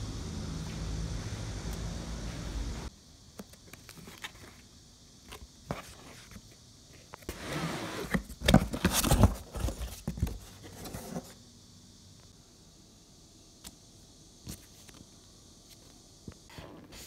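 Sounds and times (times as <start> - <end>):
cardboard and paper rustling: 7.3 - 11.4.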